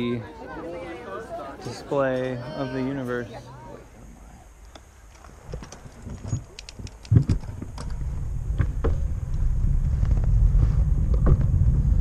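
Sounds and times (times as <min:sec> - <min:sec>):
bicycle ticks and rattles: 0:04.6 - 0:11.6
wind rushing over microphone: 0:05.9 - 0:12.0.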